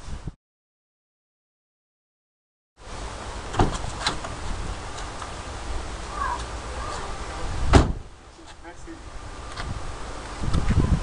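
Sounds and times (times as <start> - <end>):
wind rumble on microphone: 0.0 - 0.4, 3.6 - 8.2, 9.0 - 11.0.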